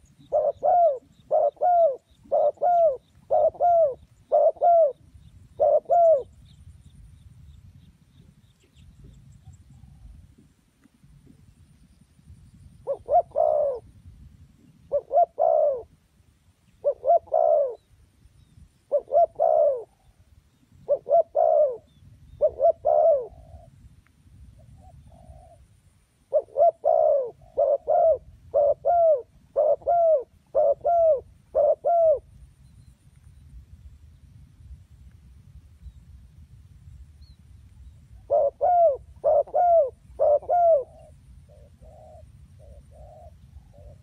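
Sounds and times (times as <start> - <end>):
dove cooing: 0.0 - 6.4, 12.8 - 13.9, 14.8 - 16.0, 16.8 - 17.9, 18.9 - 20.2, 20.8 - 23.8, 24.6 - 25.6, 26.3 - 32.3, 38.2 - 44.0.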